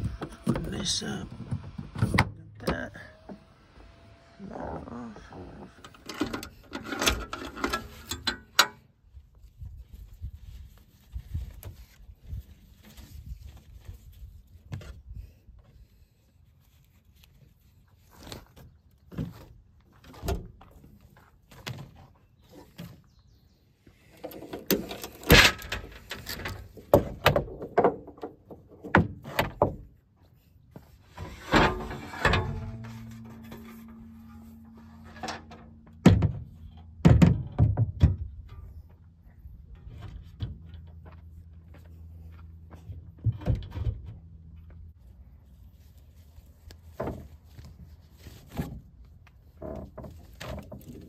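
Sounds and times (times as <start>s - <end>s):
low steady hum: 30.9s - 48.2s.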